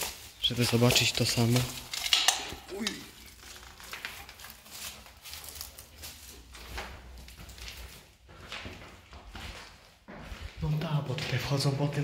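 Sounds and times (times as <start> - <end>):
footsteps on gritty concrete: 4.0 - 12.0.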